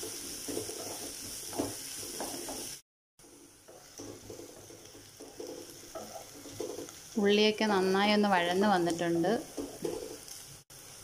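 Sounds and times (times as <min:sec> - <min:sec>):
spatula scraping a pan: 0:00.0 - 0:07.2, 0:09.0 - 0:10.4
onions sizzling in hot oil: 0:00.0 - 0:11.0.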